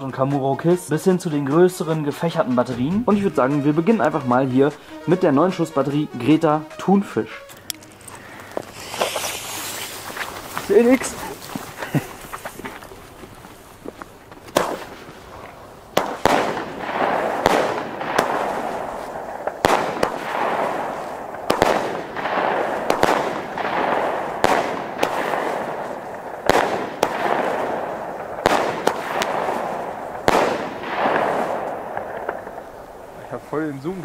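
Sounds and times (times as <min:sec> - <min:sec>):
fireworks bangs: 0:00.9 - 0:34.0
fireworks hissing crackle: 0:07.3 - 0:34.0.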